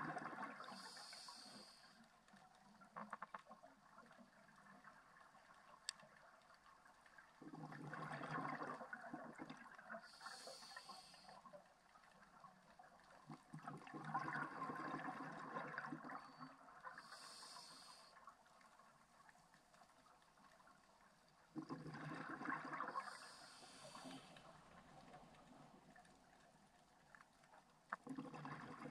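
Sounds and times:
regulator bubbles gurgling: 0.0 - 1.8, 7.1 - 19.0, 21.2 - 27.1, 27.8 - 28.9
regulator inhalation hiss: 0.7 - 2.0, 10.1 - 11.4, 17.0 - 18.2, 23.0 - 24.3.

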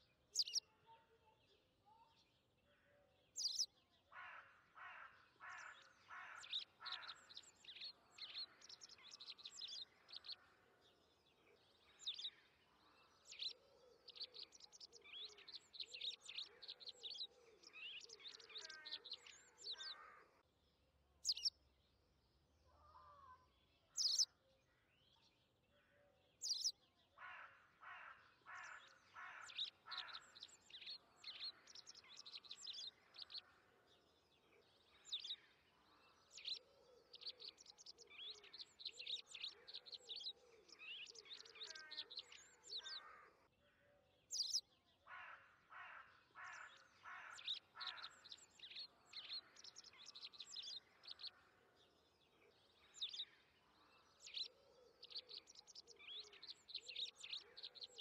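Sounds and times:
birds chirping: 0.0 - 0.7, 3.2 - 20.4, 21.2 - 24.4, 26.3 - 43.4, 44.2 - 58.0.

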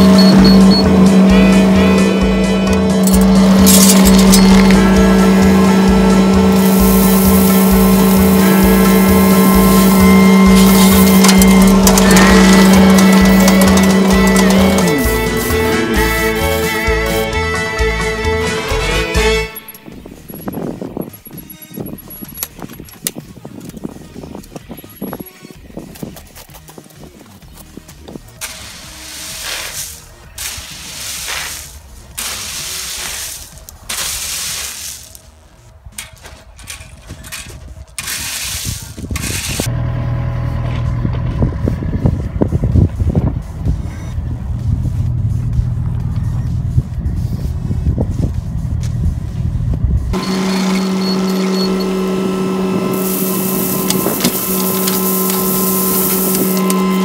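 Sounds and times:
excavator engine humming: 0.0 - 23.0, 27.4 - 57.0
rake dragged through gravel: 3.0 - 17.2, 28.2 - 39.7, 52.8 - 57.0.

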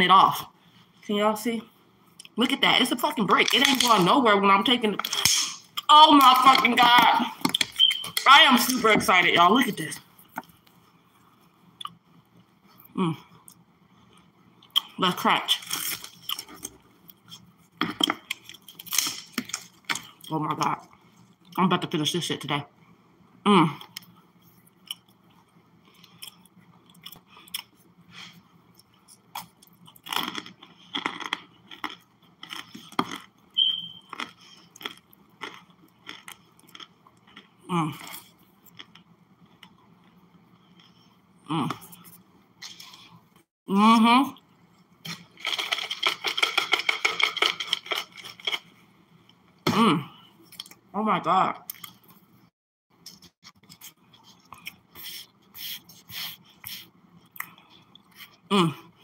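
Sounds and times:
chewing with crunches: 23.8 - 27.9, 28.7 - 41.2, 53.0 - 58.5
crisp chewing crunches: 28.8 - 41.0, 45.1 - 48.7
brief high whistle-like tone: 33.6 - 34.1.

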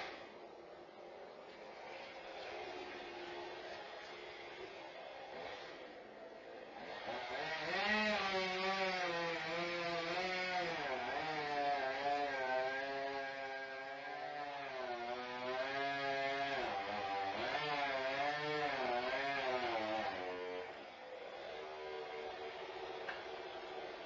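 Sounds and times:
chainsaw cutting: 0.0 - 0.4, 1.6 - 24.0.

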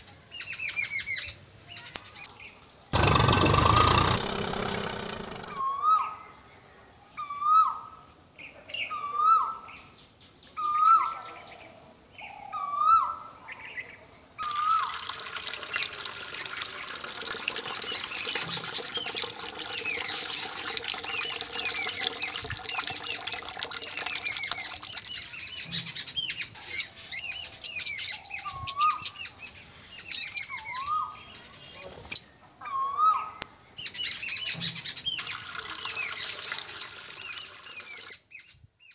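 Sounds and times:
small birds chirping chorus: 16.8 - 38.9.

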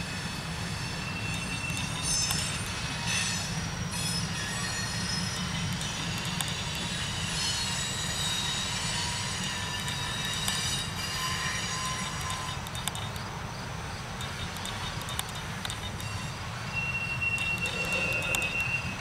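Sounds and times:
high wheel squeal: 0.0 - 13.1, 14.2 - 19.0
steel wheels rumbling on rails: 0.0 - 19.0
wheel and coupler clicks: 17.3 - 19.0.

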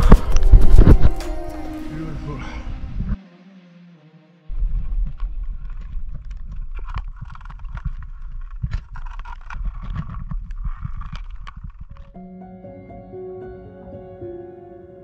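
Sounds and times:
pebbles and shells clicking: 5.0 - 12.2.

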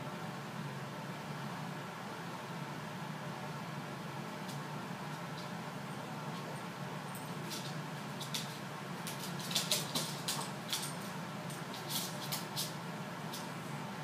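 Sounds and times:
steady low hum: 0.0 - 14.0
claws scrabbling on wooden floor: 7.3 - 13.6.

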